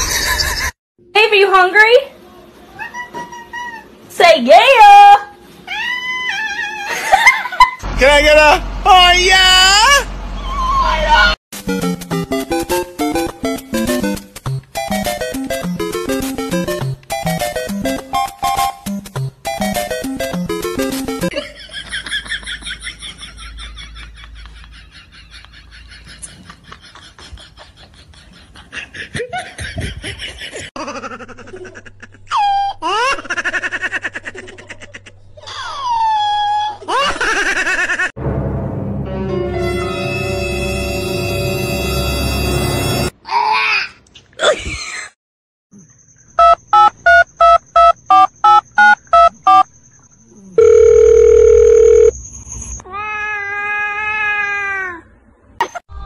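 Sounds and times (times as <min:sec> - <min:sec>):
people laughing heartily: 0:21.3 - 0:32.2
telephone keypad beeps: 0:46.4 - 0:49.6
long steady telephone tone: 0:50.6 - 0:52.1.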